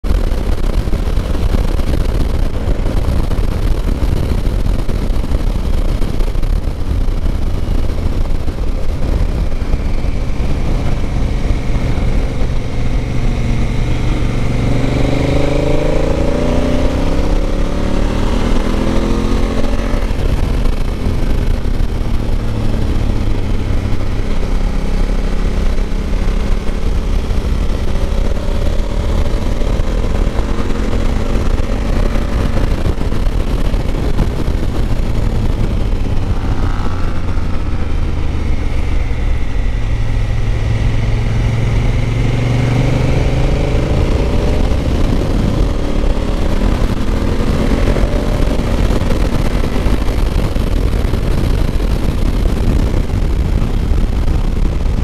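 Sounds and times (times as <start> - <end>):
motorcycle engine accelerating: 0.0 - 55.0
wind rush on microphone: 0.0 - 55.0.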